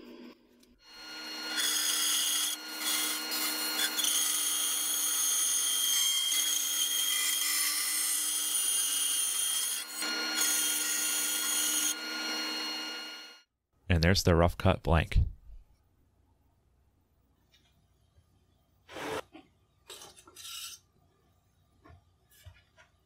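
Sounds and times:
bandsaw cutting wood: 0.9s - 13.3s.

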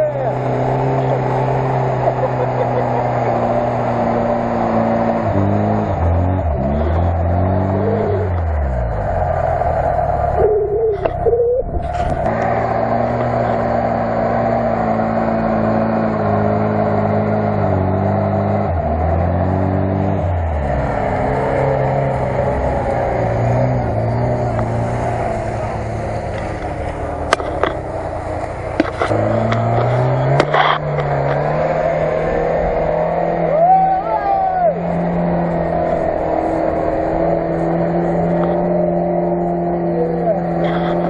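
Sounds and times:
off-road car engine revving: 0.0s - 41.0s
sharp knocks and clicks: 26.3s - 31.5s.

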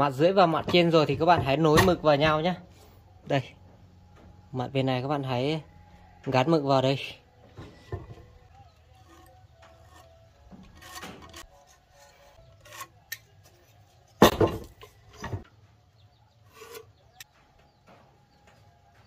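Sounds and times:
metal and wood scraping: 0.0s - 19.0s
wooden beam knocking: 7.5s - 8.4s, 14.2s - 15.5s.

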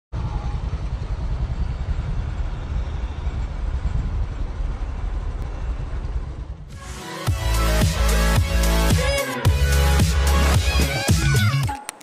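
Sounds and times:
street noise low rumble: 0.1s - 6.8s.

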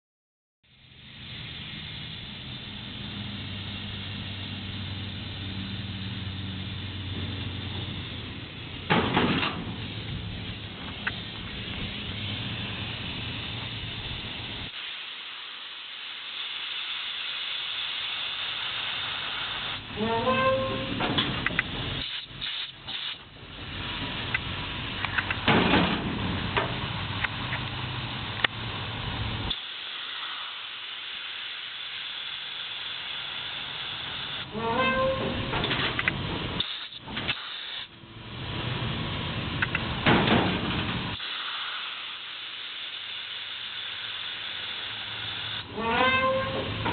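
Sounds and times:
compressed air hissing: 0.7s - 25.4s, 26.1s - 38.0s, 40.6s - 46.9s
low rumble: 0.8s - 14.7s
truck bed lowering onto frame: 8.8s - 11.9s, 20.0s - 21.8s, 25.1s - 26.9s, 34.6s - 36.4s, 39.8s - 41.2s, 45.7s - 46.9s
short rising squeal: 20.0s - 21.0s, 34.5s - 35.6s, 45.7s - 46.8s.

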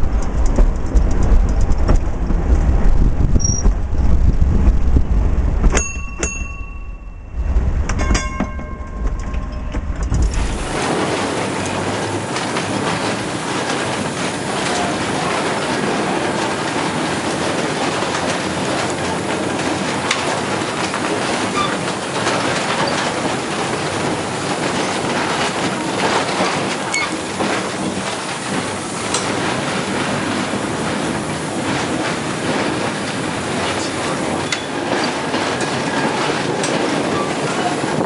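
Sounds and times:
clicks at rail joints: 0.0s - 4.4s, 7.9s - 38.0s
streetcar wheels rumbling on rail: 0.0s - 38.0s
faint wheel squeaks: 3.4s - 3.7s, 21.6s - 21.8s, 26.9s - 27.3s.

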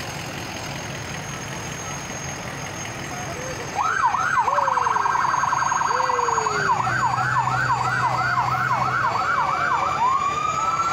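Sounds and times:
electronic siren wailing: 3.3s - 10.9s.

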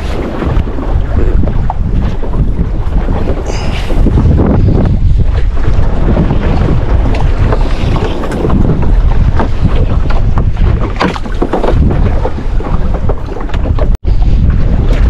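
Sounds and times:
small boat moving through sea: 0.0s - 15.0s
wind buffeting microphone: 0.0s - 15.0s.

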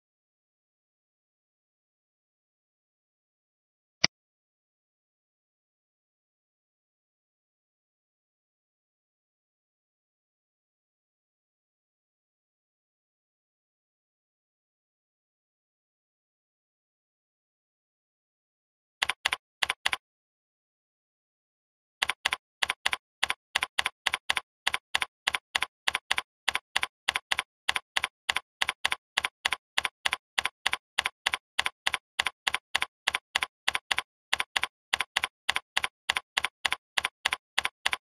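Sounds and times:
keyboard keystrokes clicking: 22.0s - 38.0s.

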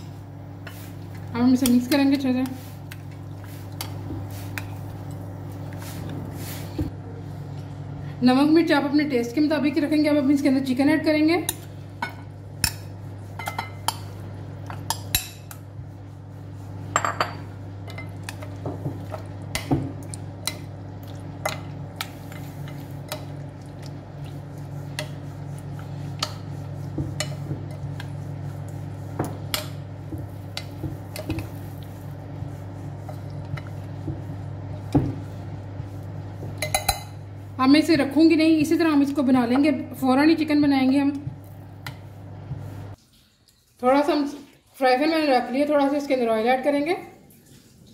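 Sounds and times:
spoon clinking against glass bowl: 36.6s - 37.2s.

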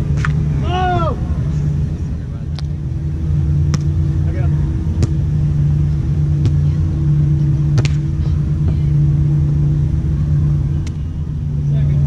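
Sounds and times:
low hum and rumble: 0.0s - 12.0s
volleyball slaps: 3.7s - 3.9s, 7.8s - 8.1s.

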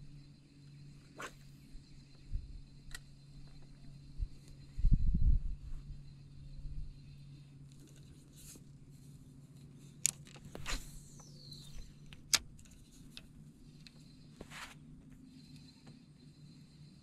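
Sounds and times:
low hum: 0.0s - 17.0s
rod swish: 1.2s - 1.4s.

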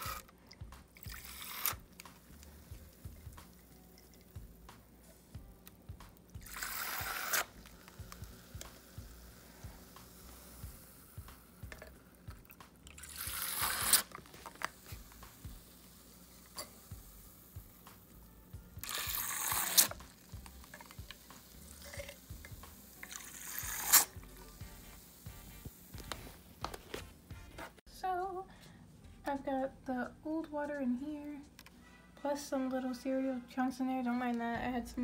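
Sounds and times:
syringe squirting water into cup: 0.0s - 4.6s, 5.6s - 16.7s, 18.8s - 24.2s.

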